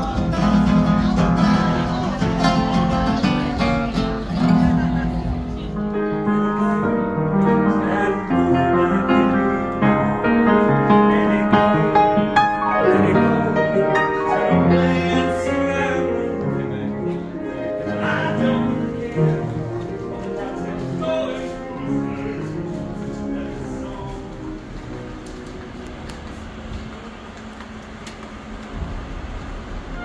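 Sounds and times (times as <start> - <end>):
piano: 0.0 - 30.0
person singing: 6.0 - 24.4.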